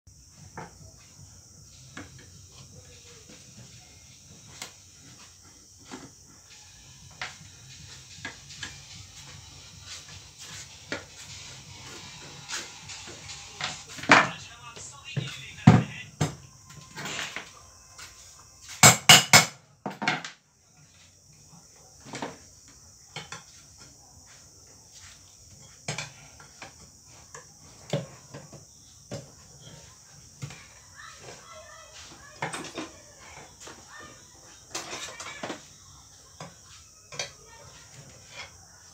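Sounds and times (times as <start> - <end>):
steady high hiss: 0.2 - 19.3.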